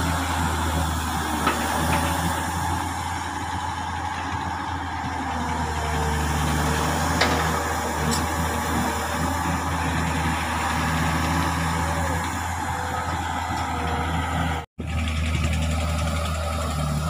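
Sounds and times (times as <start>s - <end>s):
excavator diesel engine running: 0.0s - 17.0s.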